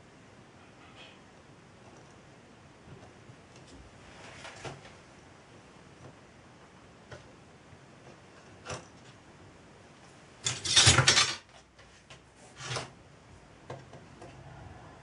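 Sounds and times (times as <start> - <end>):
metal tools clattering: 10.4 - 11.5.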